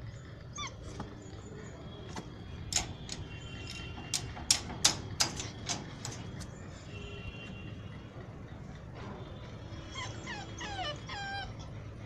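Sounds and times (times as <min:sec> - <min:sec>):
puppy whimper: 0:00.4 - 0:01.4, 0:09.8 - 0:12.0
paws rattling wire mesh gate: 0:02.6 - 0:06.5.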